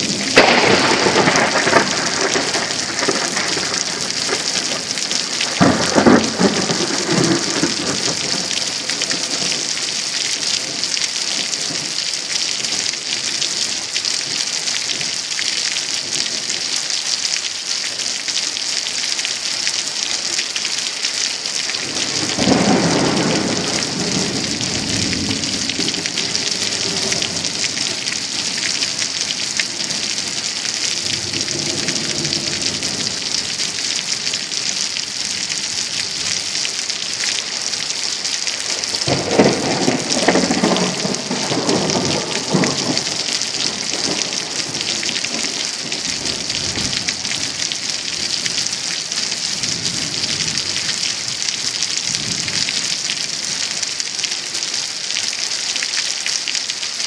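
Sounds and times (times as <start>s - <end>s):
thunder rumbling: 0.0s - 12.0s, 21.8s - 37.1s, 38.5s - 48.8s
heavy rain hissing: 0.0s - 57.0s.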